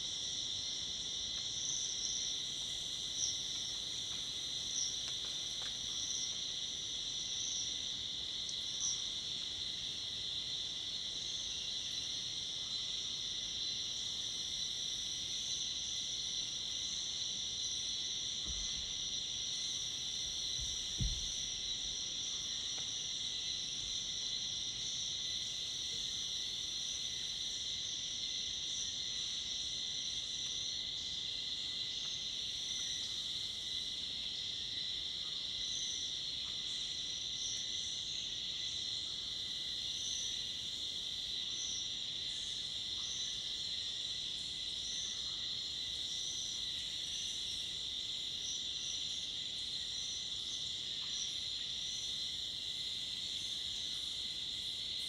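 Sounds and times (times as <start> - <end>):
cicadas and crickets chorus: 0.0 - 55.0
soft low thumps: 20.6 - 21.6.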